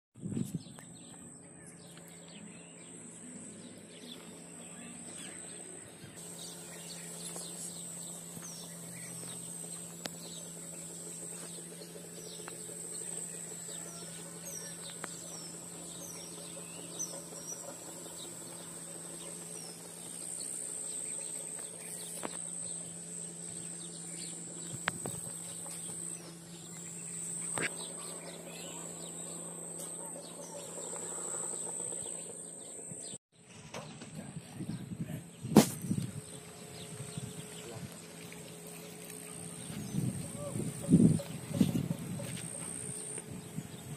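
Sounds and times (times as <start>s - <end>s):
birds chirping: 0.2s - 43.9s
high-pitched insect drone: 6.2s - 33.0s.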